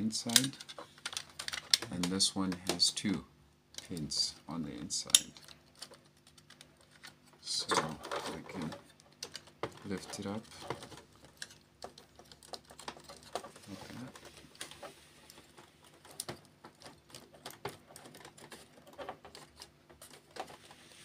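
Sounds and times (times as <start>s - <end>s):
plastic and metal parts clicking: 0.2s - 2.9s, 5.0s - 20.7s.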